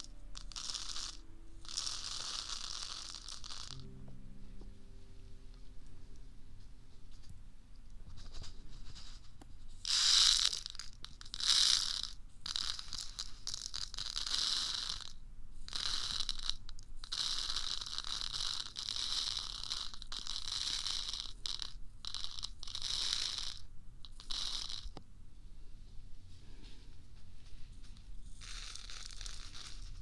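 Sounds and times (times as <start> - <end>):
tool scratching microphone: 28.1 - 30.0.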